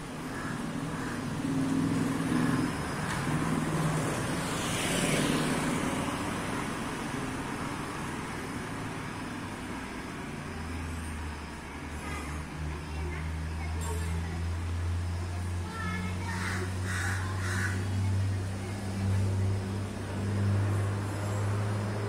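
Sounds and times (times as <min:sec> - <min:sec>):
motor scooter engine passing: 0:00.4 - 0:07.1.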